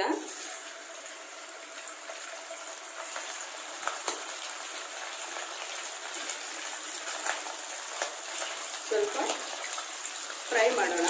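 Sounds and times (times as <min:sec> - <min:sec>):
meat sizzling in hot oil: 0:00.0 - 0:11.0
oil popping and crackling: 0:00.0 - 0:11.0.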